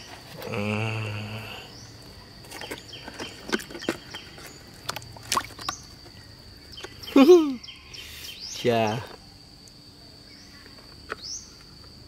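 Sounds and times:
insects trilling: 0.0 - 12.0
wet clicks and splashes: 2.5 - 7.0.

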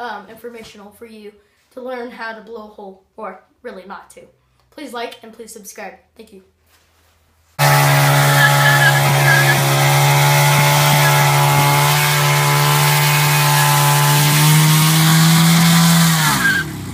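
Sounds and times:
motorcycle engine at high revs: 7.6 - 16.9.

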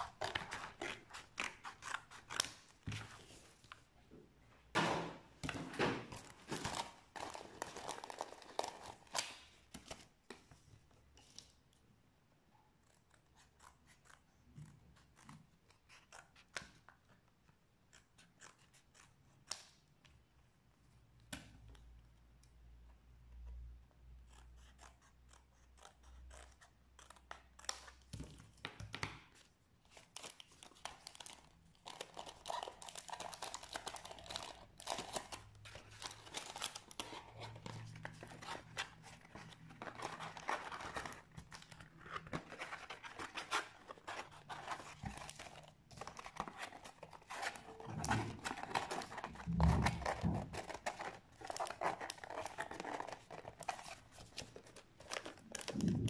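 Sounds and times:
card rustling: 29.9 - 56.0.

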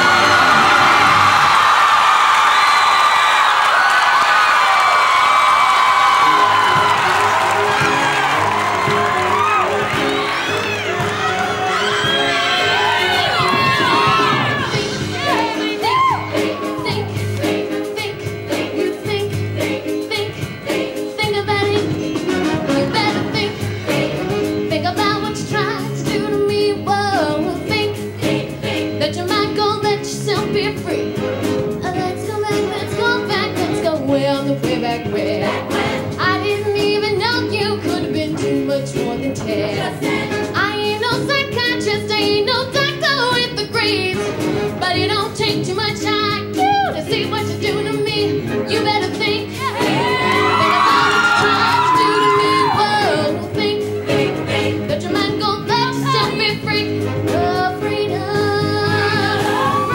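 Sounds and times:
choir singing: 0.0 - 1.9, 6.2 - 30.0, 34.8 - 36.8, 37.4 - 40.9, 47.7 - 59.9
live band playing: 5.8 - 59.9.

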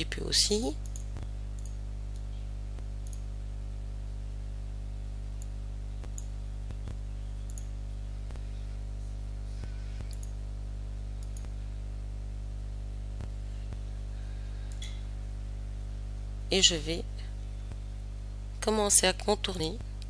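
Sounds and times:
low electrical hum: 0.0 - 20.0
computer mouse clicking: 0.8 - 3.3, 5.4 - 7.7, 10.0 - 10.4, 11.2 - 11.6.

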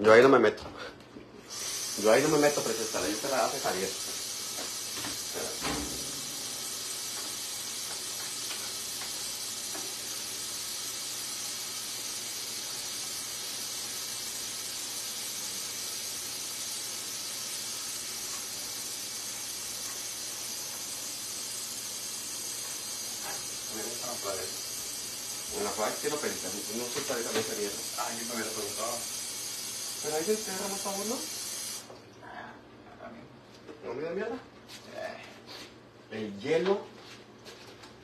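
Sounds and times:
meat sizzling in a pan: 1.5 - 31.9.

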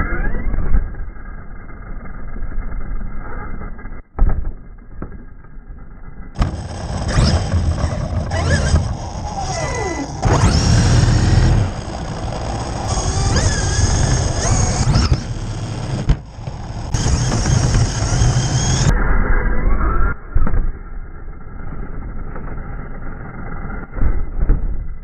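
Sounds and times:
electric motor whine: 6.4 - 18.9.

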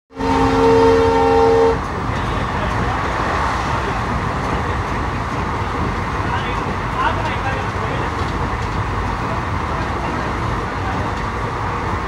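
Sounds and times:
train horn blast: 0.1 - 2.6
train wheels rumbling on rails: 0.1 - 12.0.

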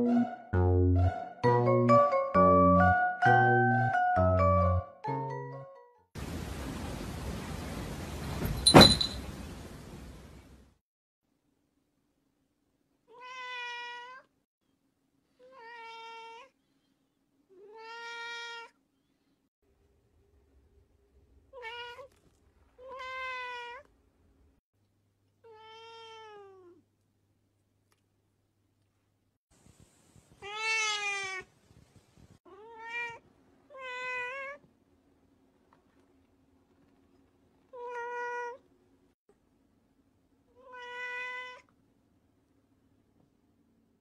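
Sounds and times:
cat meowing: 13.1 - 14.3, 15.4 - 16.6, 17.5 - 18.8, 21.5 - 22.2, 22.8 - 23.9, 25.4 - 26.8, 30.4 - 31.5, 32.5 - 34.6, 37.7 - 38.6, 40.6 - 41.7.

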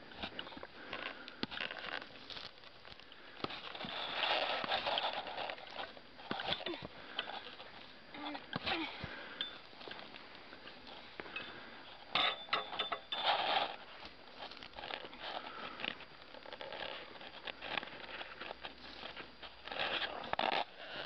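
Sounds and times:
turf scraping and rustling on soil: 3.4 - 6.6, 13.1 - 21.0.

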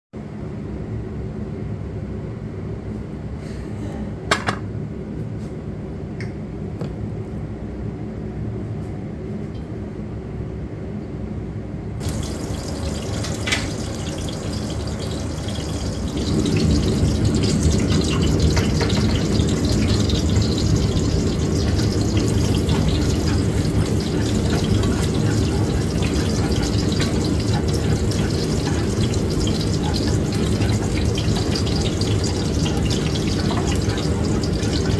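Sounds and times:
tap water running into sink: 12.0 - 34.9.

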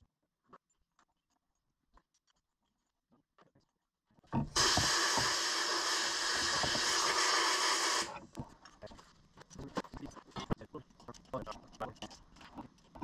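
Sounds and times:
compressed air blow gun hissing: 4.6 - 8.1.

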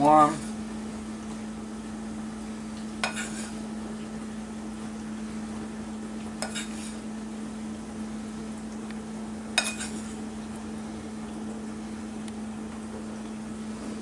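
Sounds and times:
steady low hum: 0.0 - 14.0
metal spoon clinking ceramic bowl: 9.6 - 10.0.

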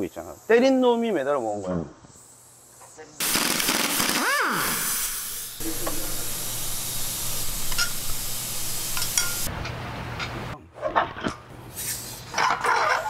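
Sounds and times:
compressed air hissing: 2.1 - 9.5
impact wrench whine: 3.2 - 6.1.

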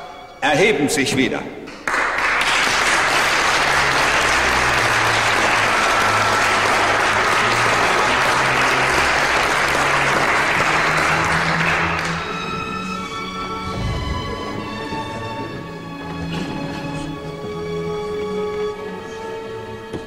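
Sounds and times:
crowd applauding: 1.7 - 15.5
low held music notes: 10.0 - 20.0.

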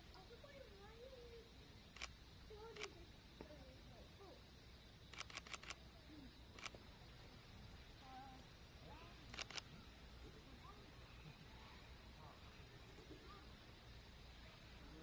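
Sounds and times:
faint distant voices: 0.0 - 15.0
camera shutters clicking: 5.1 - 5.8, 6.6 - 6.8, 9.3 - 9.7.

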